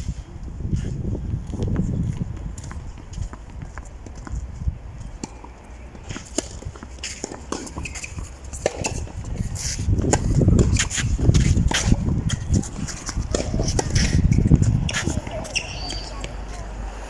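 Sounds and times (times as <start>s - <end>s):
tennis racket hitting ball: 5.2s - 16.5s.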